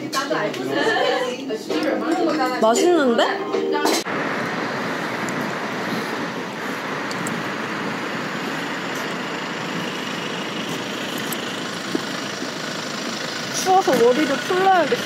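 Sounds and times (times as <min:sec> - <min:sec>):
cars running past: 0:04.1 - 0:15.0.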